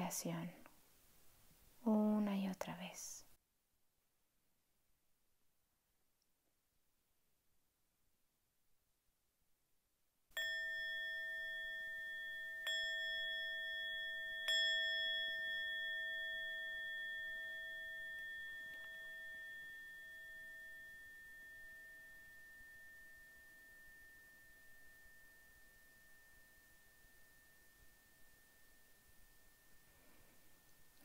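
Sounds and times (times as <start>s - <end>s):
meditation bell ringing: 10.4s - 31.0s.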